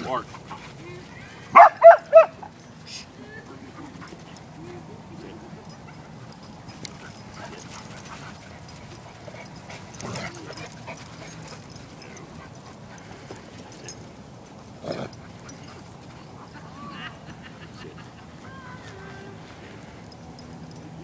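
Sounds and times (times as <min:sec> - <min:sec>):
dogs scuffling: 0:00.0 - 0:16.7
dog vocal sounds: 0:06.8 - 0:14.0.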